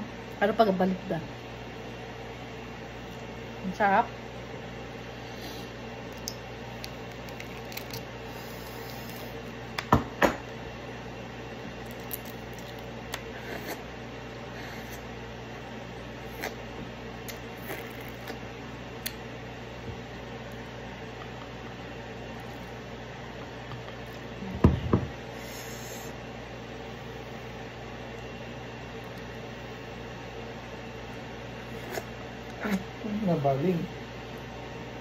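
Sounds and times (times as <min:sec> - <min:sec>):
room hum: 0:00.0 - 0:35.0
squishy eating sounds: 0:06.0 - 0:09.5, 0:11.8 - 0:13.9, 0:16.2 - 0:19.2.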